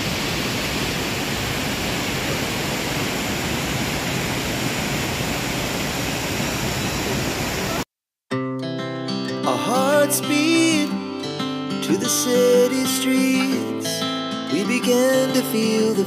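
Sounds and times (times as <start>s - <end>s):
waterfall rushing: 0.0s - 7.8s.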